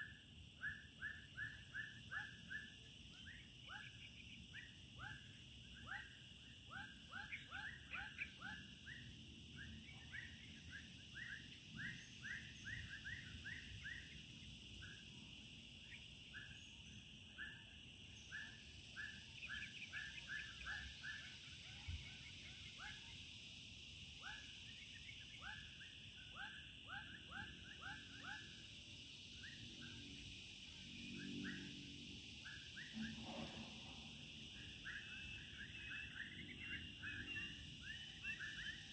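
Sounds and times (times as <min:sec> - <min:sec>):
high insect drone: 0:00.0 - 0:38.9
rapid short chirping calls: 0:15.8 - 0:23.2, 0:34.5 - 0:38.9.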